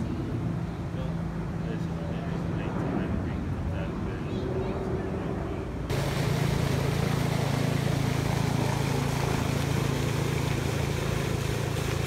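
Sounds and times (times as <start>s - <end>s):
low steady hum: 0.0s - 12.0s
fountain splashing into pool: 5.9s - 12.0s.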